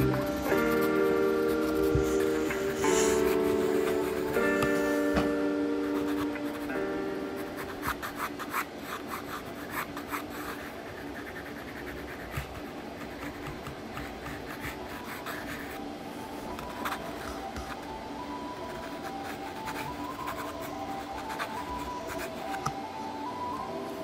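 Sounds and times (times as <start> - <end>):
pencil scratching on paper: 0.0 - 5.1, 5.8 - 6.7, 7.4 - 15.8, 18.7 - 22.6.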